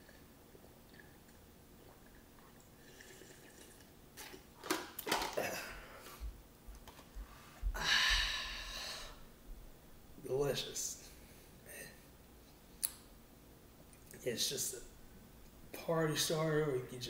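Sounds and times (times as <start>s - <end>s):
man sipping and swallowing: 0.0s - 4.5s
breathy exhale: 7.3s - 9.2s.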